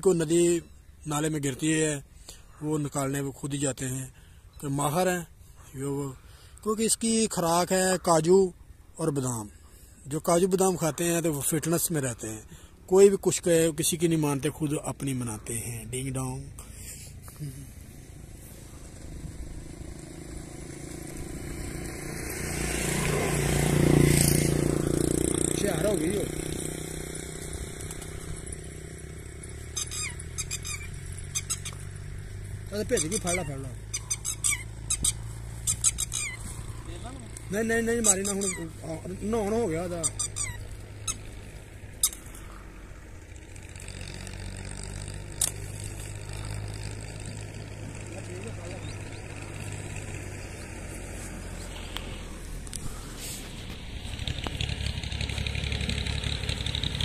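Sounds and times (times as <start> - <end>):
vehicle engine passing: 10.7 - 57.0
sharp clicks: 45.3 - 46.0.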